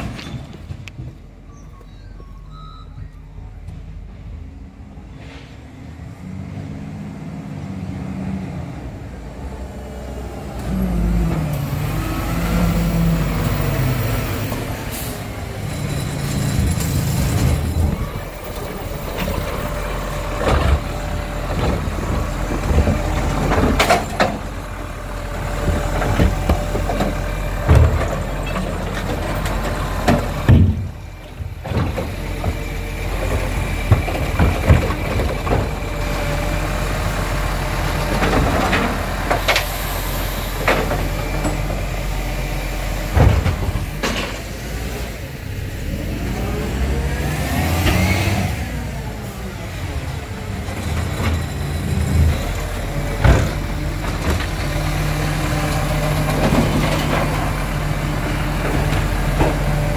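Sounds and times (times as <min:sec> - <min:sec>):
garbage truck diesel engine: 0:00.0 - 0:59.9
air brake hiss: 0:05.1 - 0:05.8.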